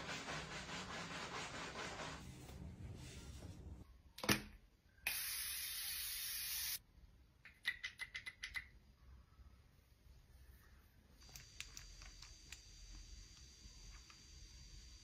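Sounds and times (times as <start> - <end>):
spray-like hiss: 5.1 - 6.8, 11.2 - 15.0.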